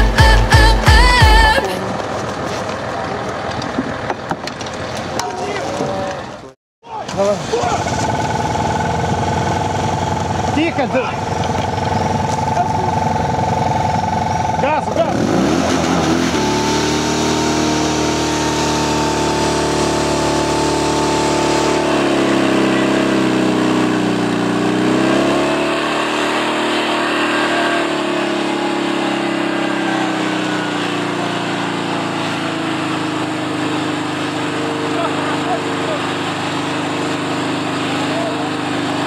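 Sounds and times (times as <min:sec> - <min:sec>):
pump engine running flat out: 0:07.1 - 0:25.5, 0:27.9 - 0:39.0.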